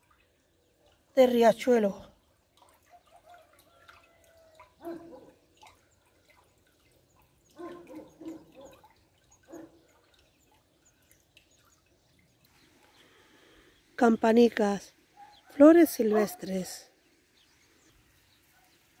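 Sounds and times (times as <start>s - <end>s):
stream trickling over pebbles: 0.0s - 19.0s
water drips and gurgles: 0.0s - 19.0s.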